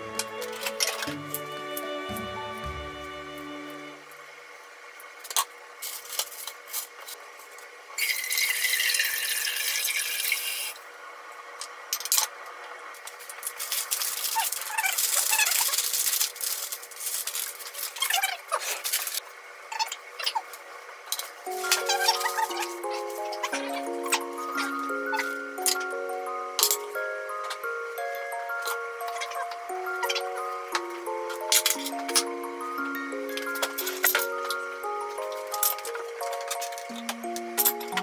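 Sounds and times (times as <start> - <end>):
crisp rustling: 13.6 - 19.2.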